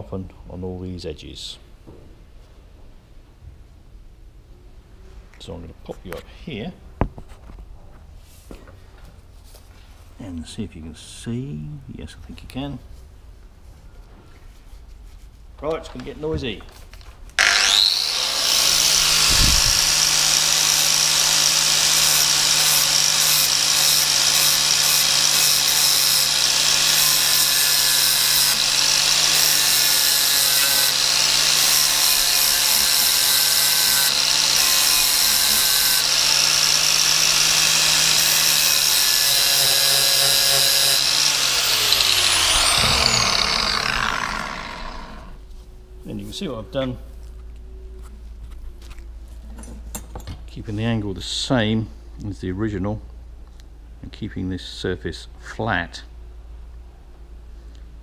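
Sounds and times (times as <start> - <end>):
angle grinder whining: 17.4 - 45.4.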